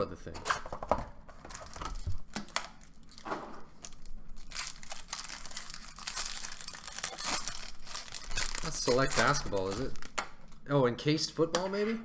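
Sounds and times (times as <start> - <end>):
foil wrapper crinkling and tearing: 1.4 - 10.2.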